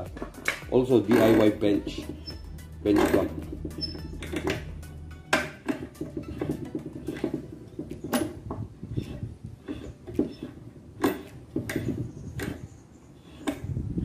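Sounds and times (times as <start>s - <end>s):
low rattle: 0.0s - 14.0s
metal clicks and knocks on wood: 2.9s - 4.7s.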